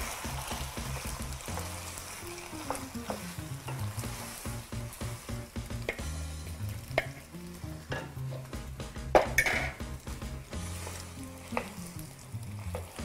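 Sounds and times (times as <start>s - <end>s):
pan sizzling: 0.0s - 13.0s
quiet background music: 0.0s - 13.0s
wooden spoon scraping pan: 10.6s - 11.9s.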